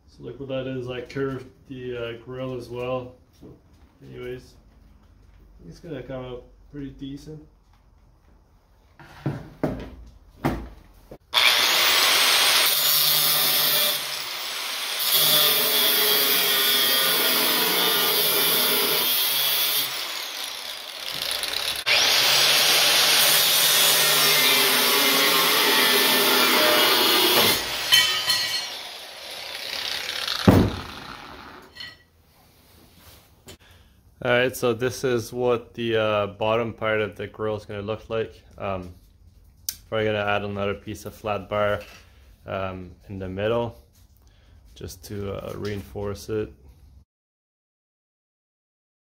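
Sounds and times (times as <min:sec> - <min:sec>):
knocks: 0:09.2 - 0:10.8, 0:30.4 - 0:31.0
angle grinder cutting steel: 0:11.3 - 0:32.0
sharp clunk: 0:30.4 - 0:30.9.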